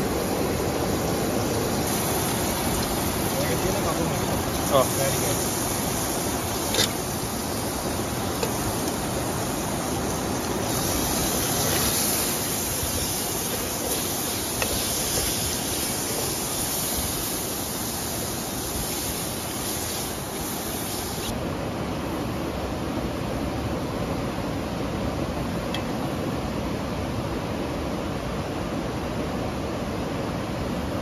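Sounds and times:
waterfall roaring: 0:00.0 - 0:21.8.

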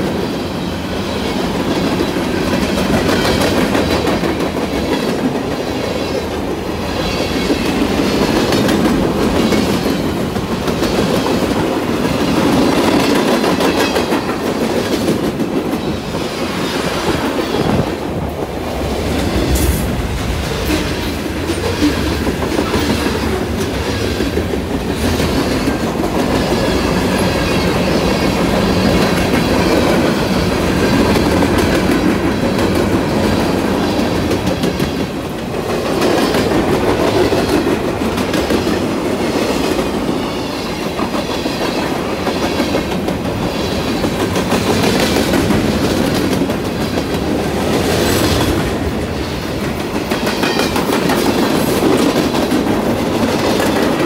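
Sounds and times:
steel wheels rumbling on rails: 0:00.0 - 0:54.0
faint high wheel squeal: 0:40.2 - 0:44.2.

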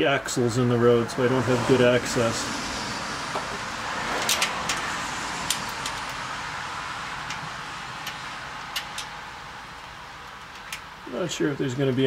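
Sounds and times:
car passing on road: 0:00.1 - 0:11.3
light metallic clicks of bolts: 0:04.2 - 0:06.2, 0:07.2 - 0:09.2, 0:09.8 - 0:10.9.

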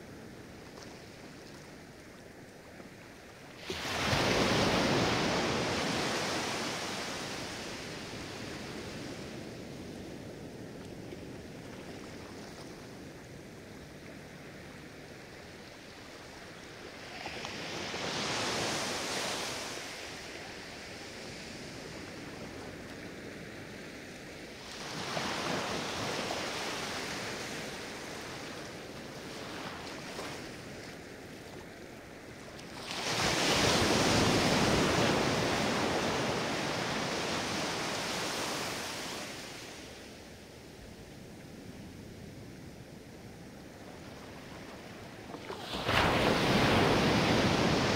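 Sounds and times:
steady hiss of sea: 0:00.0 - 0:11.1, 0:12.4 - 0:47.9
waves breaking on sand: 0:03.5 - 0:14.8, 0:15.4 - 0:47.9.

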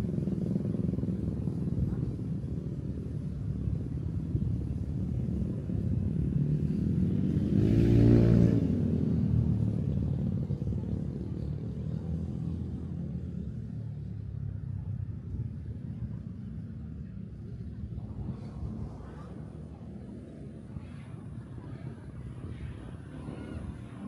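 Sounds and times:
low traffic rumble: 0:00.0 - 0:24.0
vehicle passing close by: 0:06.7 - 0:09.5.

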